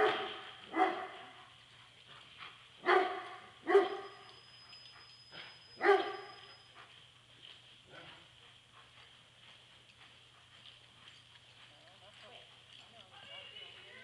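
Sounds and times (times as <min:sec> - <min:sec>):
dog barking: 0:00.0 - 0:01.4, 0:02.8 - 0:04.2, 0:05.4 - 0:06.5
steady low hum: 0:00.0 - 0:14.0.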